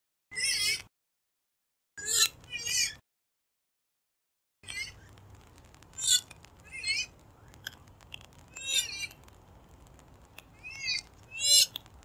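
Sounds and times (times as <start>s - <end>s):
bird high calls: 10.6s - 11.8s.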